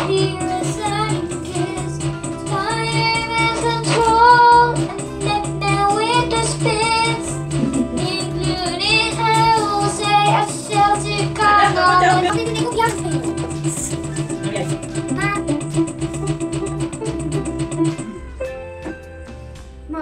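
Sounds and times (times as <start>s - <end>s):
girl singing into microphone: 0.0s - 12.5s
electronic keyboard accompaniment: 0.0s - 20.0s.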